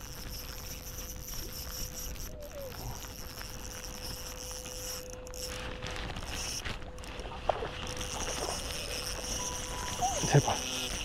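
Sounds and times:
insects buzzing: 0.0s - 11.0s.

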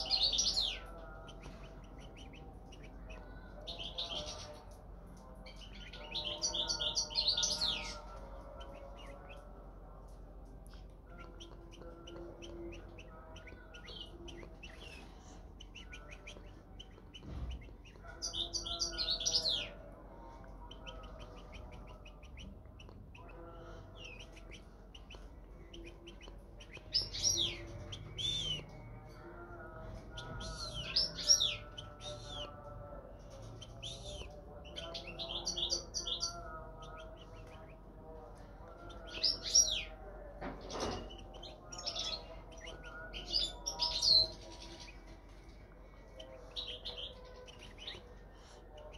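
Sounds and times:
goldfinch twittering song: 20.7s - 28.7s.

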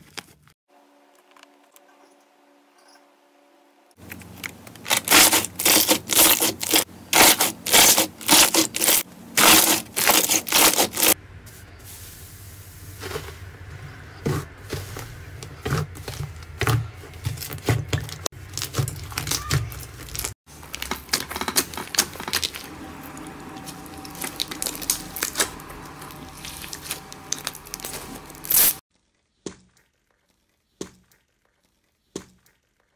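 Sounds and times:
slime crackling and popping: 23.8s - 32.9s.

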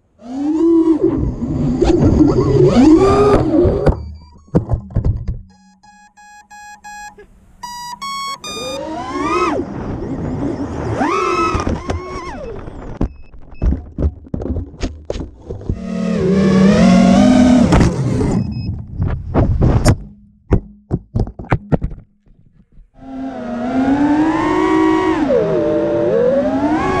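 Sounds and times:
drone motors whining: 0.0s - 14.0s, 15.4s - 19.0s, 23.0s - 27.0s
drone crashing knocks and thumps: 2.0s - 5.5s, 11.6s - 22.9s.

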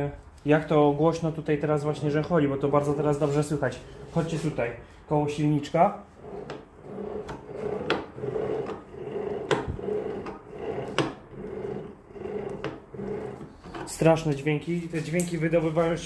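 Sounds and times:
steering motor grinding: 6.1s - 14.0s.

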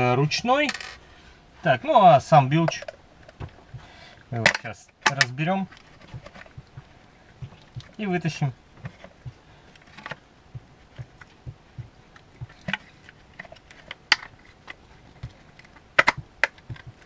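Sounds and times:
plastic clicks and knocks: 4.4s - 8.0s, 12.4s - 17.0s.

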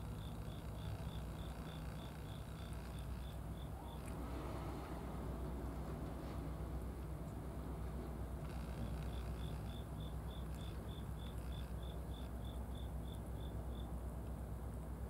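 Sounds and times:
insect chirping: 0.0s - 4.2s, 8.4s - 14.0s.

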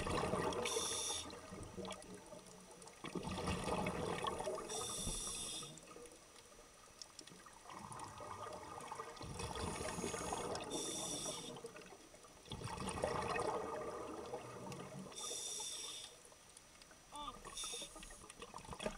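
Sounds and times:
exhaled air bubbling: 0.0s - 6.0s, 7.5s - 15.4s
regulator inhalation hiss: 0.7s - 1.4s, 4.7s - 5.8s, 9.8s - 11.6s, 15.2s - 16.2s, 17.5s - 18.1s.

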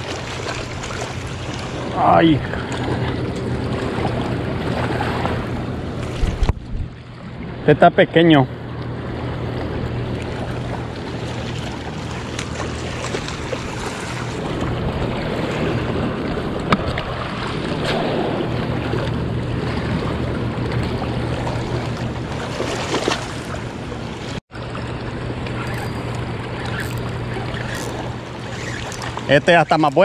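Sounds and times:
low steady hum: 0.0s - 30.0s
wind on microphone: 1.8s - 7.0s.

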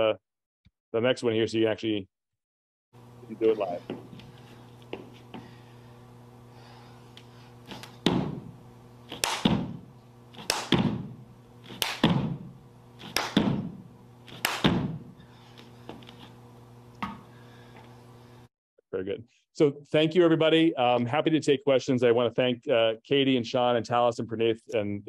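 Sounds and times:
low electrical hum: 3.0s - 25.0s
hands clapping and smacking floor: 9.1s - 12.4s, 13.0s - 15.0s.

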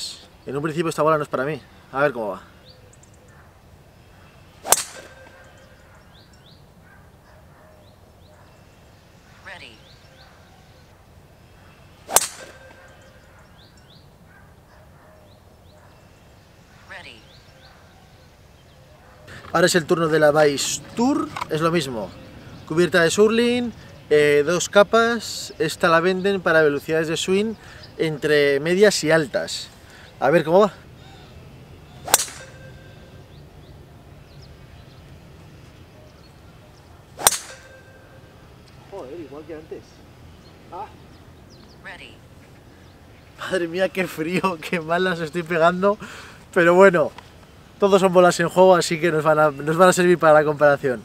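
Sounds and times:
golf club striking ball: 4.6s - 5.3s, 12.1s - 12.7s, 32.0s - 32.8s, 37.2s - 38.0s.

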